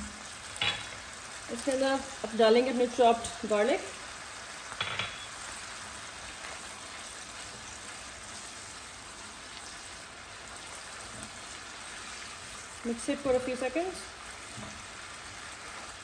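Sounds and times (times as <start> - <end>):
sauce sizzling in a frying pan: 0.0 - 16.0.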